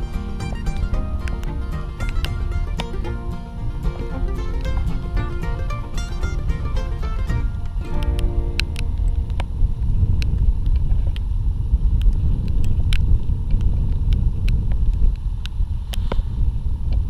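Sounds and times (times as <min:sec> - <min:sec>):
boat noise: 0:00.0 - 0:10.2
wind rumble: 0:00.0 - 0:17.0
light sharp ticks: 0:01.2 - 0:03.0, 0:12.0 - 0:16.2.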